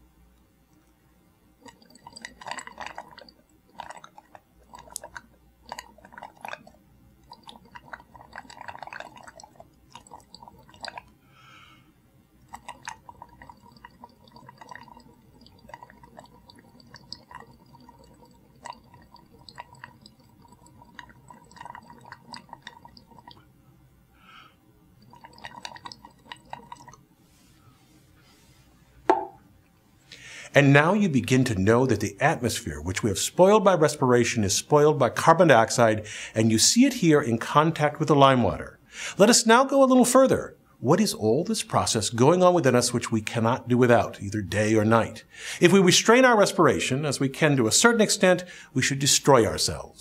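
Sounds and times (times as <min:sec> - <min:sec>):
breath bubbling through liquid: 0:01.6 - 0:23.6, 0:24.2 - 0:27.0, 0:35.6 - 0:36.4.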